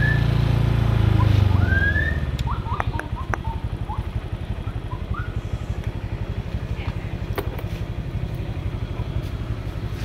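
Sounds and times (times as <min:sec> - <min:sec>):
vehicle engine idling: 0:00.0 - 0:10.0.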